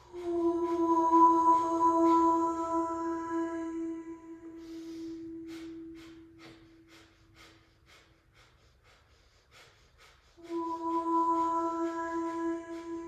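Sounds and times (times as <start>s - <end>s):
musical drone note: 0.0s - 7.6s, 10.4s - 13.0s.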